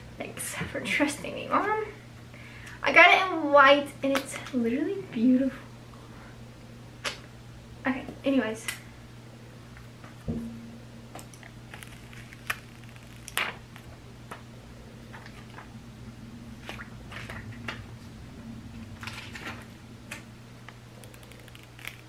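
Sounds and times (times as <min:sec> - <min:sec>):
room fan humming: 0:00.0 - 0:22.0
plastic film crinkling: 0:11.7 - 0:13.9, 0:21.0 - 0:22.0.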